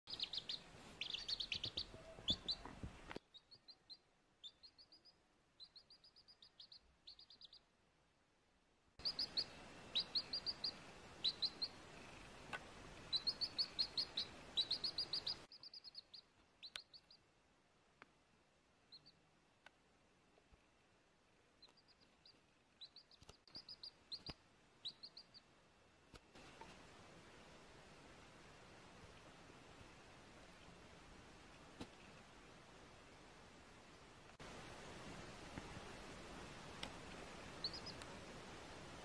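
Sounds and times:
baby chick peeping: 0:00.1 - 0:07.7, 0:09.0 - 0:17.3, 0:18.9 - 0:19.2, 0:21.6 - 0:25.5, 0:36.8 - 0:38.1
faint hiss: 0:00.1 - 0:39.0.

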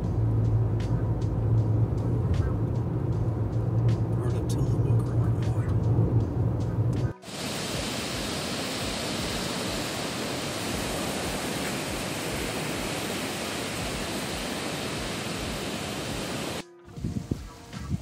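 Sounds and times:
running water rushing: 0:07.2 - 0:16.6.

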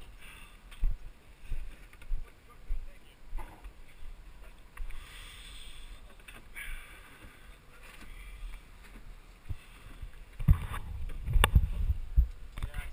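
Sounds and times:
wind on microphone: 0:09.4 - 0:12.9.

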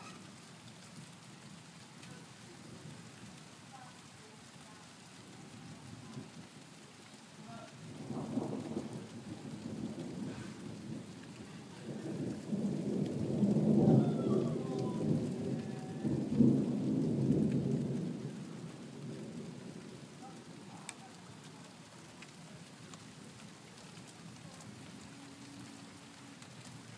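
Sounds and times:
steady rain: 0:00.0 - 0:26.9
thunder rumbling: 0:07.4 - 0:26.9.

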